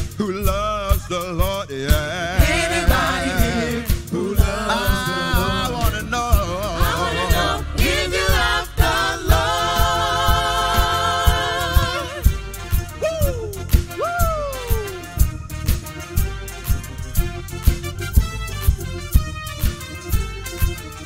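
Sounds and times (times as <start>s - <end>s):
band with steady drum beat: 0.0s - 21.0s
gospel singers with backing vocals: 0.3s - 12.6s.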